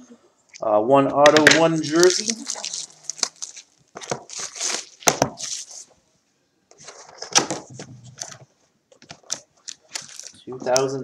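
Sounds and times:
cardboard box and foil rustling: 1.8 - 5.9, 9.3 - 10.4.

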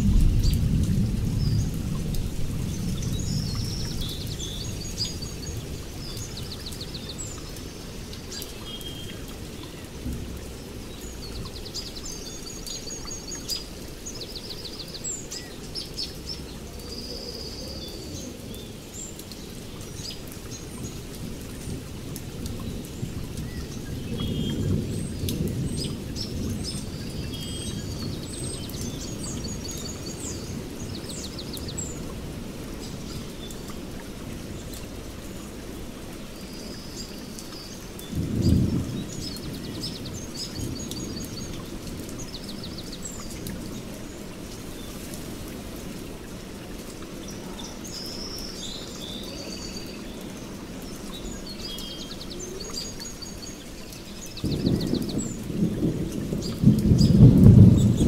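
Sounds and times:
thunder rumble: 0.0 - 7.0, 38.1 - 45.8, 54.4 - 58.0
steady rain: 0.0 - 58.0
birds chirping: 1.4 - 58.0.

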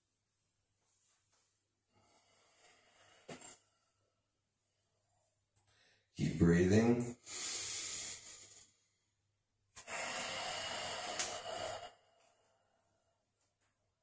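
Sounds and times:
man breathing deeply: 1.9 - 4.3, 7.2 - 9.0, 9.8 - 13.2.

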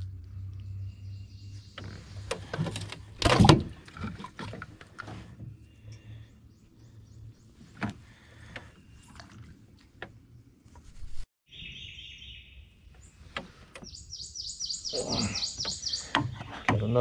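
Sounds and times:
birds calling: 0.3 - 9.5, 11.5 - 17.0
bird rapid repeated call: 13.9 - 16.6.

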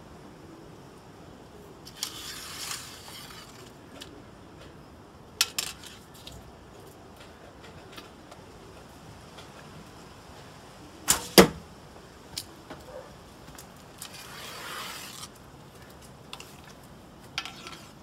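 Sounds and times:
arrows clicking and rustling: 1.8 - 4.8, 5.4 - 8.2, 11.1 - 11.6, 12.3 - 18.0
bowstring snap: 11.1 - 11.5
arrow thudding into target: 11.1 - 11.6.

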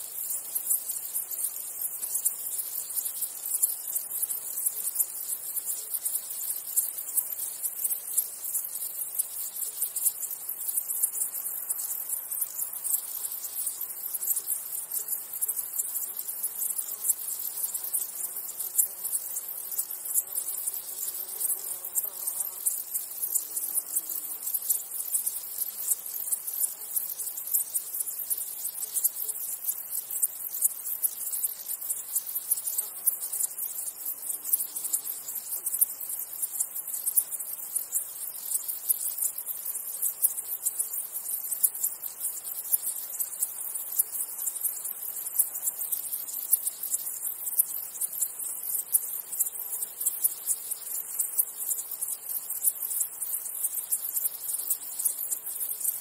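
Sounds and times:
insects chirring: 0.0 - 56.0.

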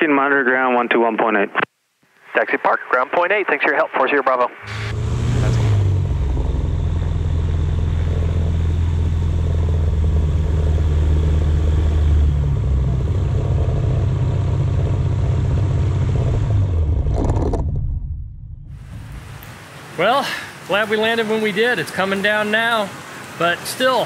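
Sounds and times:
light aircraft engine droning: 4.7 - 17.6.

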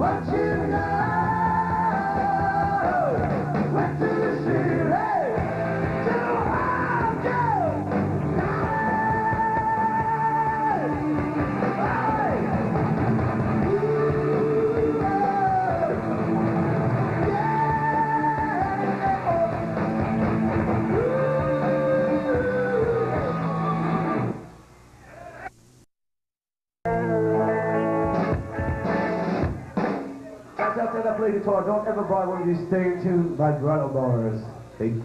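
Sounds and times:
live rock band playing: 0.0 - 24.4, 26.9 - 31.4
bending lead guitar notes: 26.9 - 31.0.

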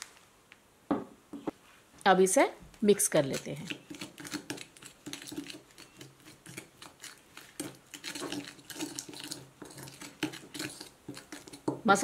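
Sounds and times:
metal spoon scraping glass bowl: 3.2 - 11.7.

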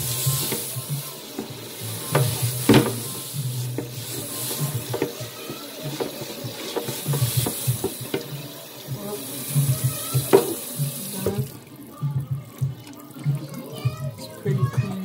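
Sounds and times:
scrubbing under running water: 0.0 - 11.8
tap running into a steel sink: 0.1 - 11.6
light knocks in a sink: 2.1 - 3.1, 10.3 - 10.6.

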